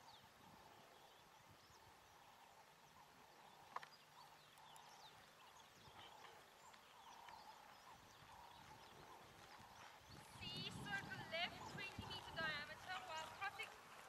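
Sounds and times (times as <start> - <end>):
bird chirps: 0.0 - 13.5
horse hoofbeats on sand: 5.8 - 14.0.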